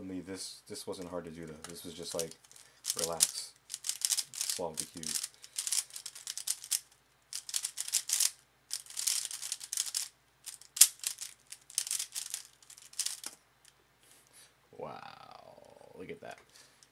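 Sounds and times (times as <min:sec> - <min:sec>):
puzzle cube clicking and rattling: 0:01.6 - 0:13.4.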